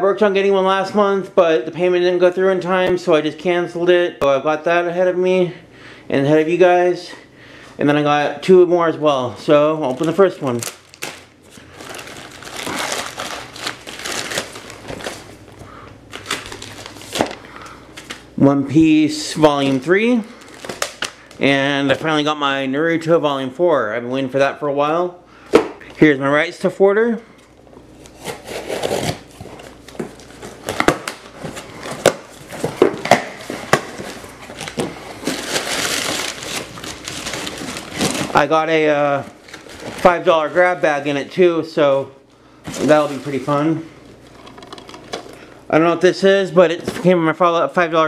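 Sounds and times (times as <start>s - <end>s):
packing paper rustling: 9.5s - 18.3s, 19.4s - 21.6s, 28.0s - 41.3s, 42.6s - 45.5s
plastic mailer crinkling: 9.5s - 18.3s, 19.5s - 21.6s, 28.0s - 41.4s, 42.7s - 45.4s
knife slitting packing tape: 28.1s - 29.3s.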